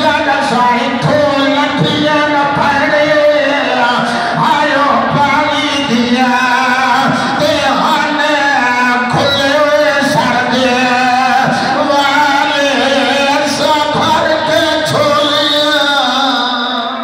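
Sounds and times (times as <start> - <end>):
man chanting into a microphone: 0.0 - 17.0.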